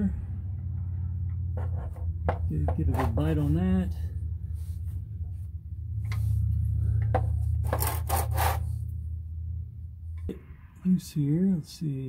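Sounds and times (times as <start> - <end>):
steady low hum: 0.0 - 12.0
wrench scraping and clicking on metal: 7.6 - 8.7.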